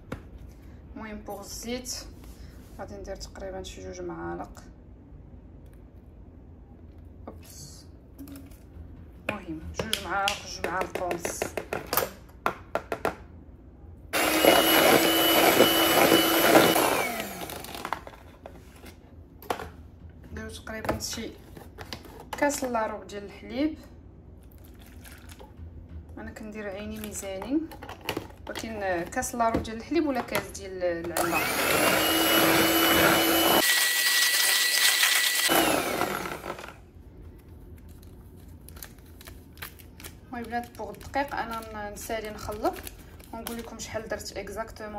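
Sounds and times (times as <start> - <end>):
electric hand mixer whining: 14.2 - 18.0, 31.2 - 36.8.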